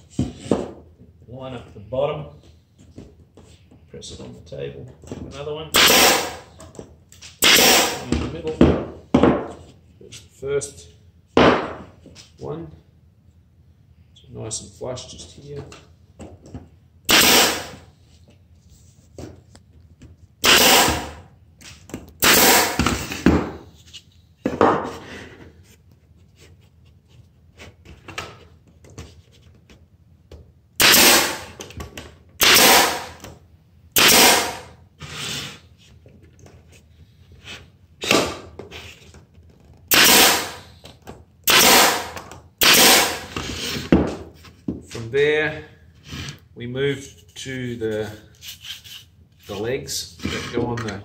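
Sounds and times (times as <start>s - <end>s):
pneumatic stapler firing: 5.8s - 6.5s, 7.4s - 8.0s, 17.1s - 17.8s, 20.4s - 21.2s, 22.2s - 23.3s, 30.8s - 31.7s, 32.4s - 33.3s, 34.0s - 34.7s, 39.9s - 40.7s, 41.5s - 43.4s.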